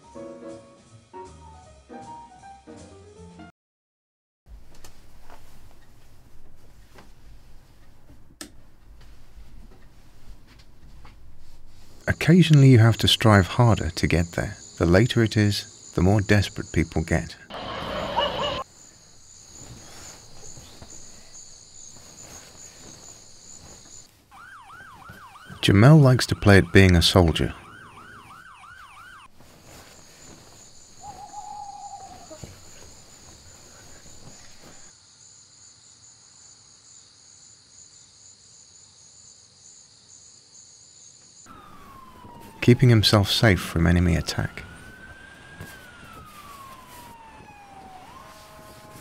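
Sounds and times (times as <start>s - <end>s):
crickets chirping: 11.3s - 48.7s.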